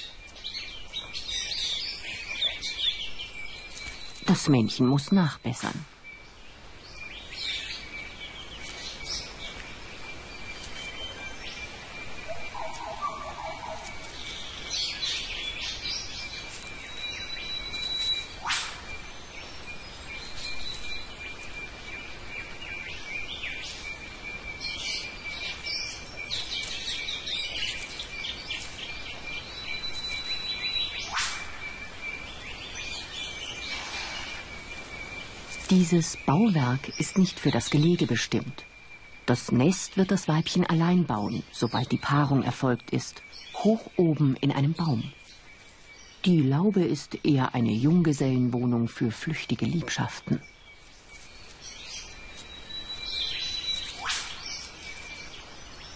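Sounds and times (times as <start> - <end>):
birds chirping and whistling: 0.0 - 55.9
downward-sweeping bird whistles: 16.8 - 21.8, 52.8 - 55.3.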